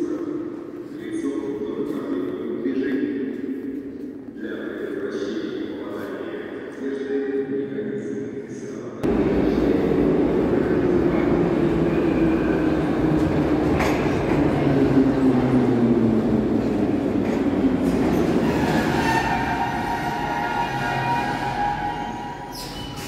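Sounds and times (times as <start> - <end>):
train wheels rumbling on rail: 9.0 - 23.0.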